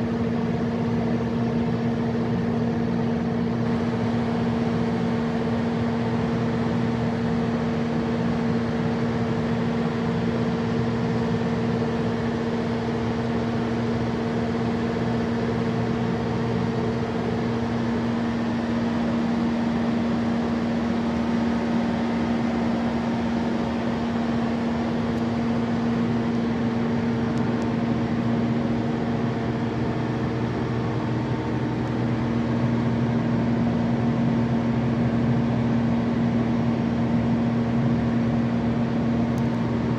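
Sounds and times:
diesel generator running: 0.0 - 39.9
radiator fan: 0.0 - 39.9.

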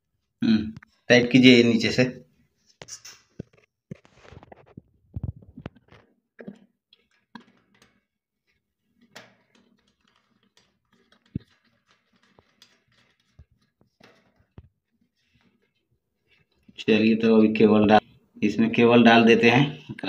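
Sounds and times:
metal fittings clicking and knocking: 5.6 - 8.1, 9.0 - 14.7.

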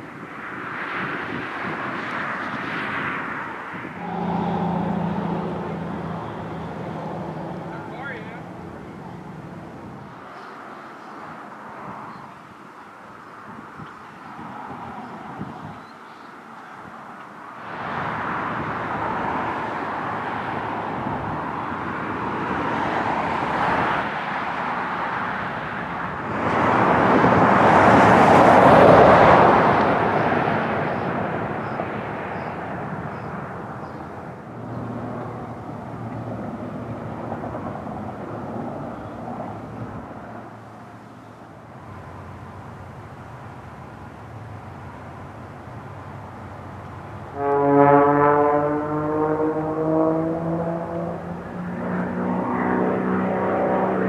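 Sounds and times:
outdoor ambient noise: 0.0 - 54.0
vehicle passing: 2.6 - 10.7, 17.6 - 41.0, 44.6 - 54.0.

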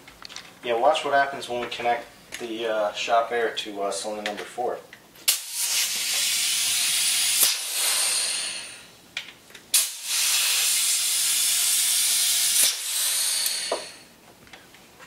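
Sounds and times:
compressed air hissing loudly: 5.3 - 8.9, 9.7 - 14.1.

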